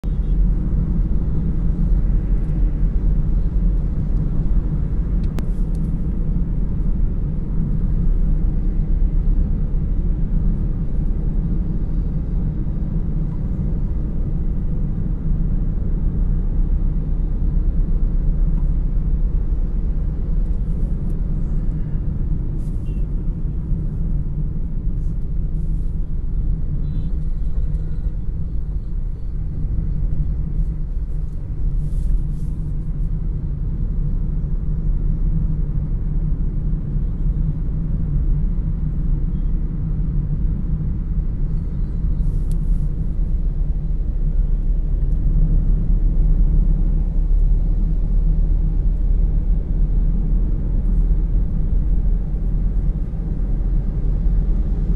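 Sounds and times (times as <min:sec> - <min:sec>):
car road and engine rumble: 0:00.0 - 0:54.9.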